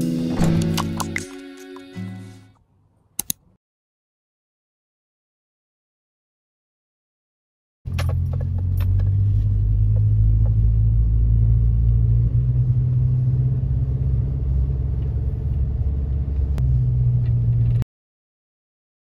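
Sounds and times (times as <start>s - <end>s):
sharp click: 3.2s - 3.4s
car engine and road rumble: 7.9s - 17.8s.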